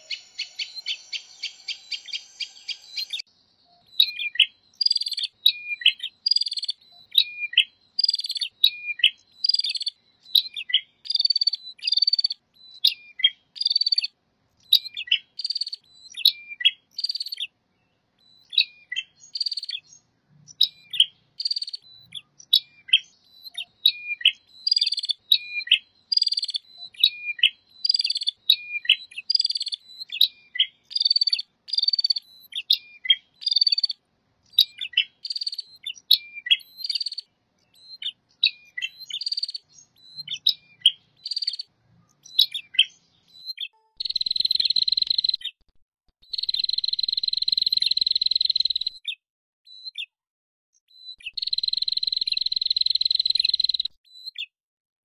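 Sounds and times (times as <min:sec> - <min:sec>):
birds chirping sharply: 0:00.0 - 0:14.0, 0:34.5 - 0:45.5.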